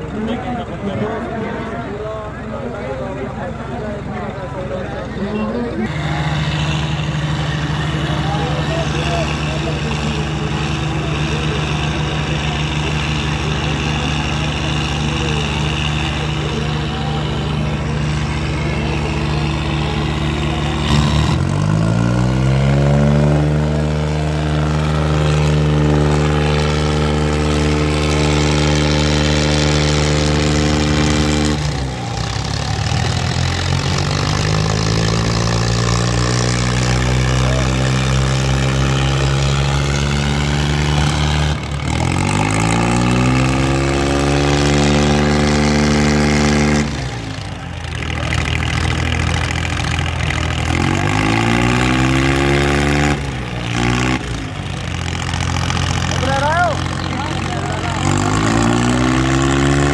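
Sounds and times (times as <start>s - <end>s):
tractor diesel engines straining: 0.0s - 59.9s.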